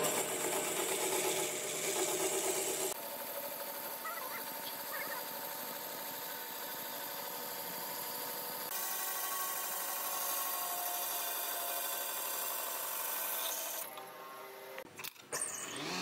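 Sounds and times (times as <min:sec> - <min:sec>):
band saw cutting log: 0:00.0 - 0:03.0, 0:04.4 - 0:14.0, 0:15.4 - 0:16.0.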